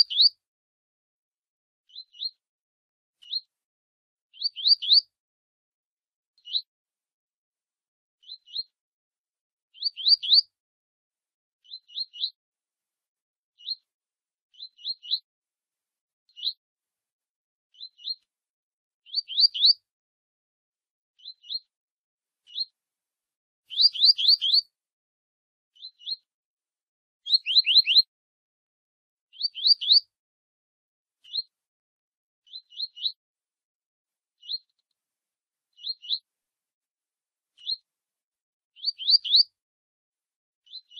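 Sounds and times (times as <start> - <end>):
bird high rising call notes: 23.7 - 24.6, 27.3 - 28.0.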